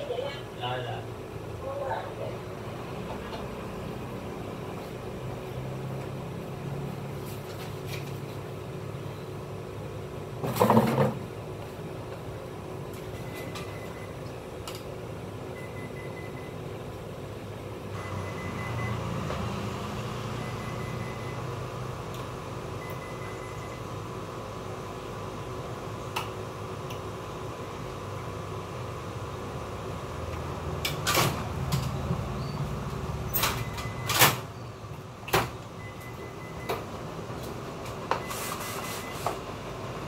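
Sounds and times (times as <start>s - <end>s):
copier humming: 0.0s - 40.0s
short high beeps: 20.4s - 21.5s.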